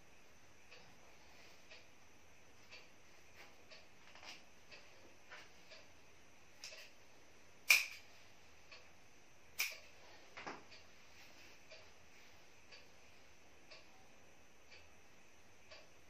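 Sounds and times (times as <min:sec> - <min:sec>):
faint light ticks: 0:01.6 - 0:01.9, 0:13.7 - 0:13.9, 0:14.7 - 0:14.9, 0:15.7 - 0:16.0.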